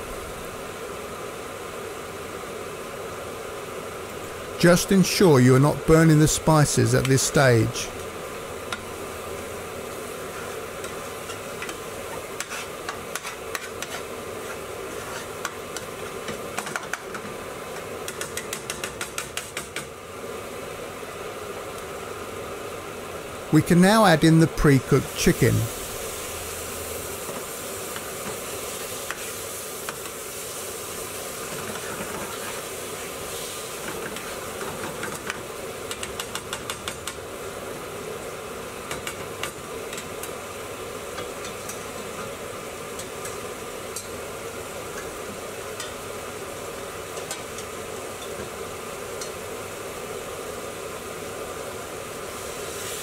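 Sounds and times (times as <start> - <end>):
chicken sizzling in oil: 0.2 - 22.8, 24.8 - 53.0
spoon stirring and scraping: 11.2 - 16.2.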